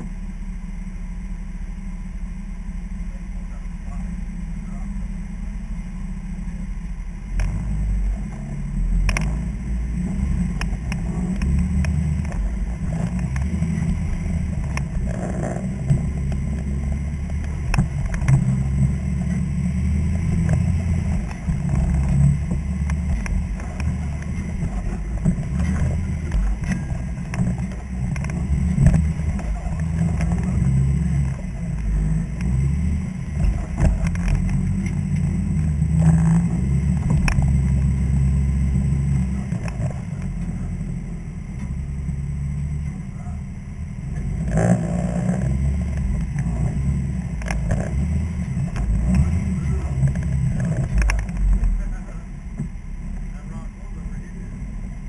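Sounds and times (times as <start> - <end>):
vehicle engine running unevenly: 0.0 - 55.0.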